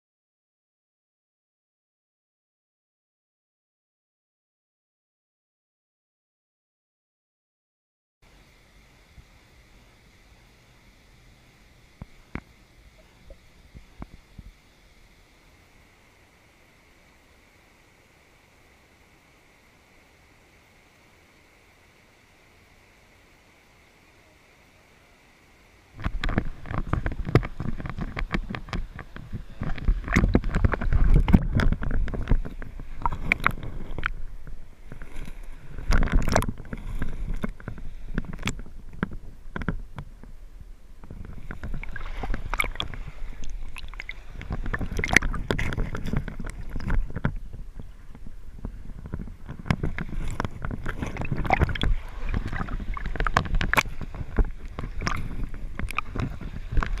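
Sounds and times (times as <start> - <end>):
stream water gurgling: 8.2 - 57.0
knocks and splashes: 26.0 - 40.3, 41.0 - 57.0.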